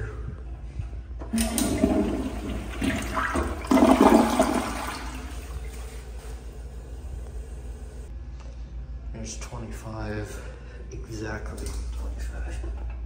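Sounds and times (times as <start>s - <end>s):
toilet flushing: 1.2s - 6.5s.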